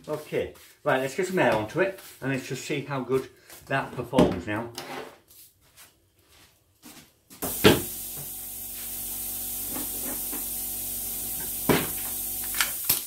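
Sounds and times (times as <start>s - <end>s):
compressed air hissing: 7.4s - 13.0s
air hose clicking onto stapler: 9.7s - 10.5s, 11.4s - 13.0s.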